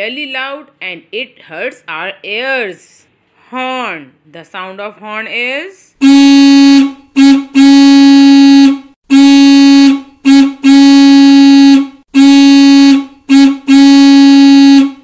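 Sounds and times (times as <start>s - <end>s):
horn honking: 6.0s - 15.0s.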